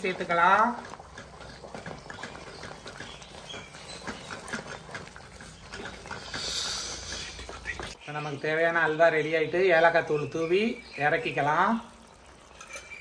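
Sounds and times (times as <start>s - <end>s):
wooden spatula scraping pan: 0.0s - 8.0s
thick sweet bubbling and popping: 0.0s - 13.0s.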